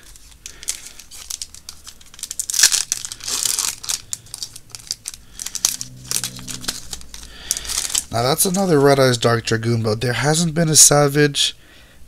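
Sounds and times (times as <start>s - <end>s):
foil wrapper tearing: 0.0s - 8.7s
foil wrappers crinkling: 0.0s - 8.8s.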